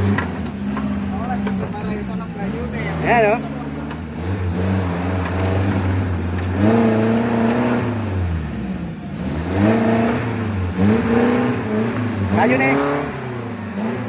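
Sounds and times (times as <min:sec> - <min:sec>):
car engine revving hard: 0:00.0 - 0:14.0.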